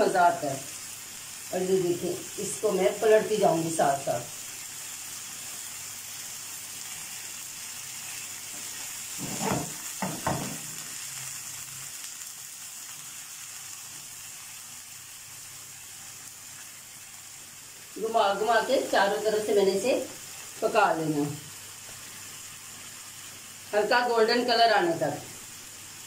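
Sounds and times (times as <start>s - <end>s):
chicken sizzling in oil: 0.0s - 26.0s
skewers knocking in pan: 8.5s - 10.9s.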